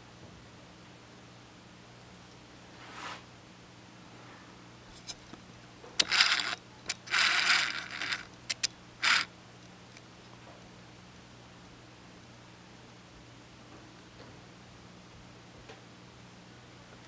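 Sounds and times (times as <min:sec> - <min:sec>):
sharp clicks: 0:06.0 - 0:09.3.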